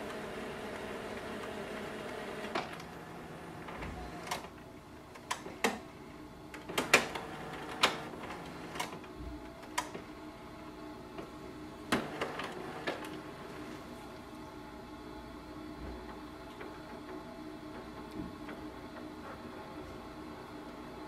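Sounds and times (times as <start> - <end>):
mechanical clicks and clunks: 0.0 - 5.8, 6.5 - 10.0, 11.9 - 13.2
printer motor hum: 0.0 - 21.0.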